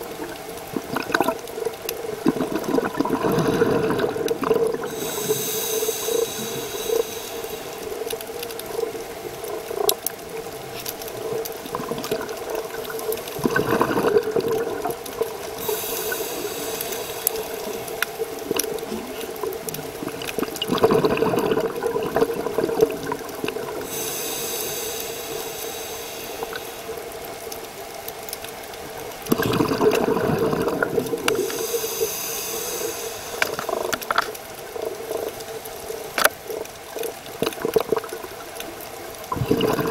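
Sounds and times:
exhaled bubbles: 0.0s - 10.6s, 11.2s - 27.8s, 29.2s - 39.9s
regulator hissing inhale: 4.8s - 8.7s, 15.5s - 19.2s, 23.7s - 27.5s, 31.1s - 34.5s
steady low hum: 4.9s - 8.4s, 15.6s - 18.4s, 23.8s - 27.6s, 31.2s - 34.2s.

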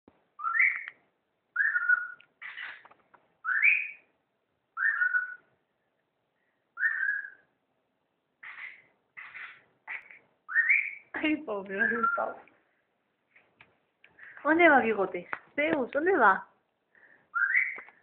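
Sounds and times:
harsh bird chirps: 0.3s - 4.1s, 4.8s - 5.5s, 6.4s - 7.6s, 8.4s - 12.4s, 17.3s - 18.0s
cockatiel whistling: 0.4s - 1.0s, 1.6s - 2.8s, 3.4s - 4.1s, 4.8s - 5.5s, 6.8s - 7.5s, 8.4s - 11.1s, 11.8s - 12.4s, 17.3s - 17.9s.

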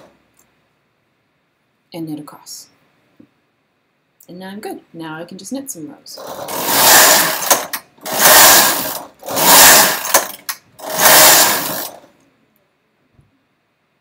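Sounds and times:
knitting machine carriage passes: 6.2s - 12.1s.

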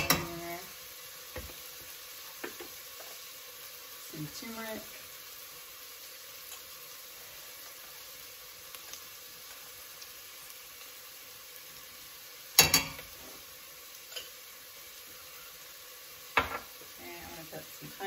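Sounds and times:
onions sizzling in a pot: 0.0s - 18.0s.

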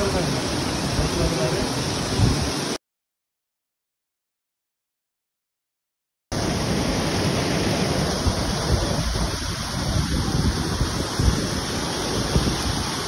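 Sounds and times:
wind buffeting microphone: 0.0s - 2.7s, 6.4s - 13.0s
heavy rain: 0.0s - 2.8s, 6.3s - 13.0s.

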